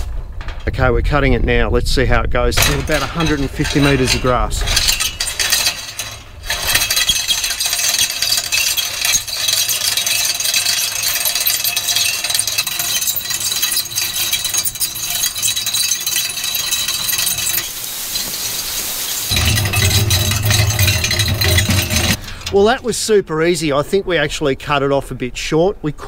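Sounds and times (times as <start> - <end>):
wire winder rattling and clicking: 2.6 - 18.3, 19.3 - 22.9.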